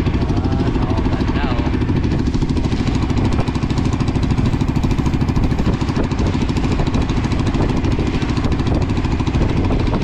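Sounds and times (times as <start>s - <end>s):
boat engine chugging: 0.0s - 10.0s.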